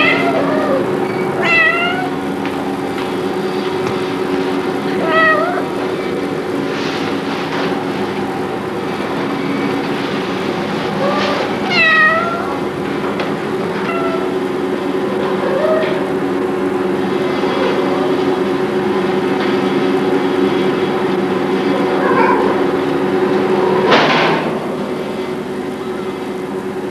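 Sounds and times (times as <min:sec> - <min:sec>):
kittens meowing: 0:00.0 - 0:02.2, 0:05.0 - 0:05.8, 0:11.0 - 0:12.7, 0:13.8 - 0:14.4.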